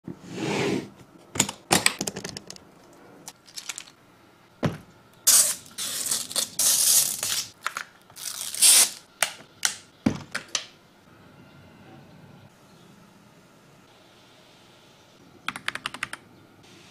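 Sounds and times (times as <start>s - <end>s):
plastic wrapping crinkling: 3.3s - 4.0s, 5.3s - 9.1s.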